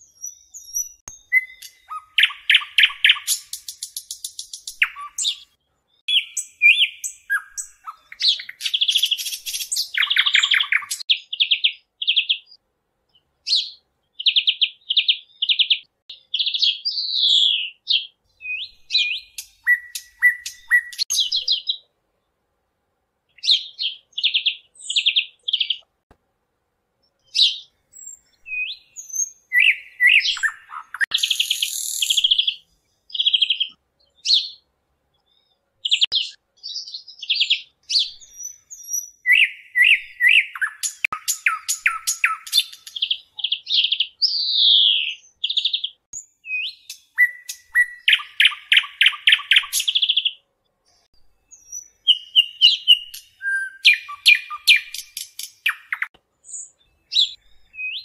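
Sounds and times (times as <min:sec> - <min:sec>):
parrot chirping and trilling: 0:00.1 - 0:05.5, 0:06.1 - 0:11.7, 0:16.4 - 0:21.8, 0:27.3 - 0:32.6, 0:37.3 - 0:50.4, 0:51.6 - 0:58.0.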